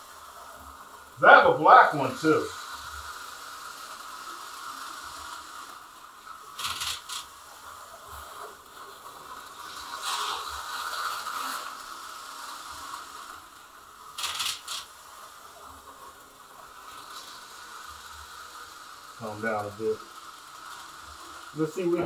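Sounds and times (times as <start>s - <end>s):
plastic toy parts rattling: 6.6s - 7.3s.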